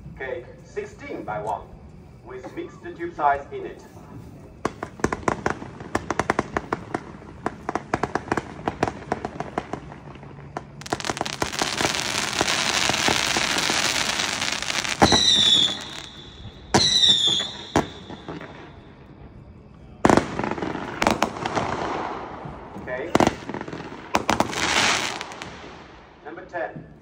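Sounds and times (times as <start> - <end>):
fireworks bursts with falling whistle: 2.3 - 26.0
fireworks crackling pops: 4.1 - 18.8, 20.1 - 26.3
sharp firework crack: 4.6 - 18.8, 20.1 - 26.2
fireworks hissing spray: 10.4 - 18.0.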